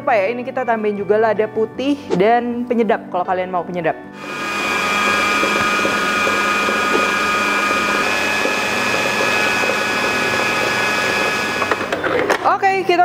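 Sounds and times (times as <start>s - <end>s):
stand mixer motor whine: 4.2s - 12.2s.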